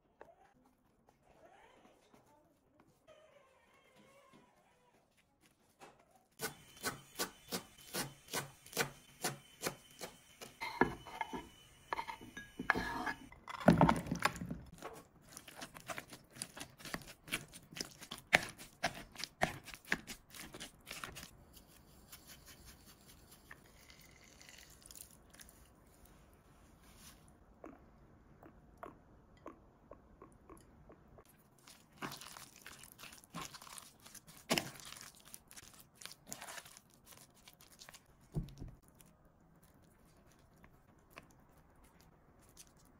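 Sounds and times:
clattering scrape: 0:10.6 - 0:13.3.

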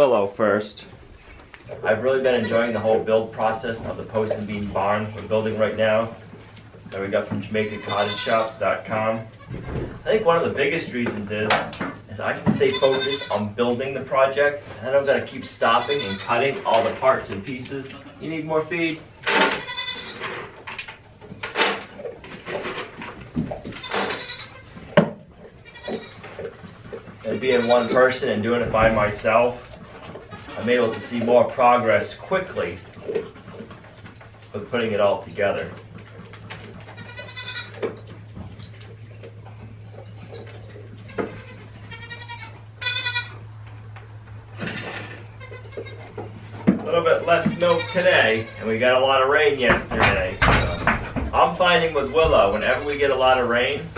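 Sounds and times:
steady low hum: 0:00.0 - 0:53.9
goats bleating: 0:01.8 - 0:03.6, 0:07.4 - 0:10.0, 0:12.2 - 0:13.6, 0:15.0 - 0:16.9, 0:19.4 - 0:20.3, 0:23.6 - 0:28.4, 0:29.5 - 0:33.2, 0:36.7 - 0:38.0, 0:40.1 - 0:43.5, 0:45.1 - 0:49.3, 0:50.1 - 0:53.5.

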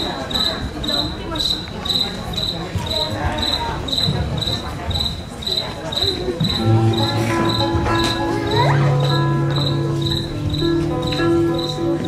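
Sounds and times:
low background murmur: 0:00.0 - 0:12.0
cricket chirping: 0:09.0 - 0:12.0.

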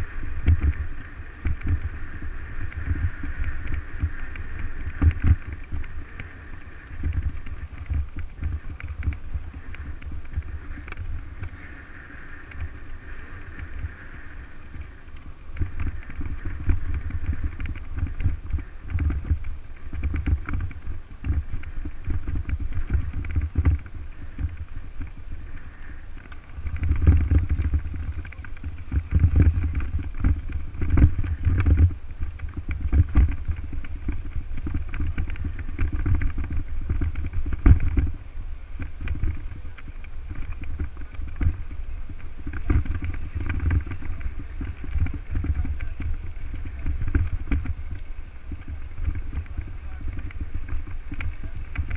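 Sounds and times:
bike rattling on gravel: 0:00.0 - 0:51.9
wind buffeting microphone: 0:00.0 - 0:51.9.

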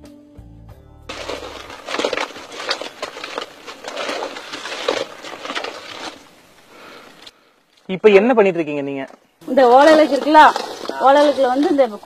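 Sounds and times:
thick syrup bubbling and popping: 0:01.1 - 0:07.2
stick stirring syrup: 0:10.0 - 0:11.8.

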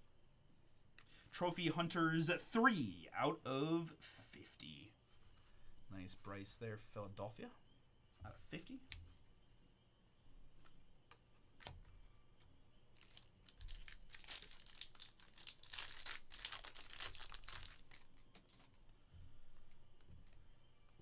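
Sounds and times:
foil wrapper crinkling: 0:12.9 - 0:18.8.

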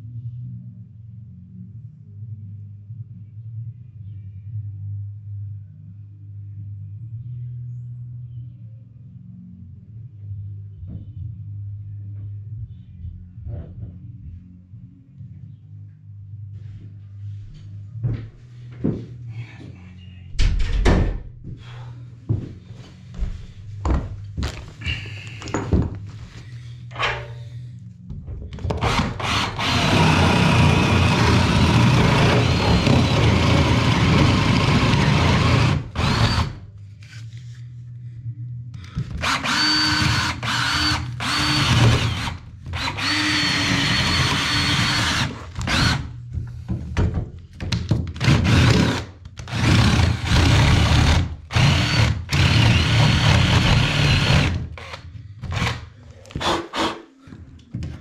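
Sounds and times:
handheld power tool whining: 0:28.8 - 0:36.6, 0:39.2 - 0:46.1, 0:48.2 - 0:57.0.

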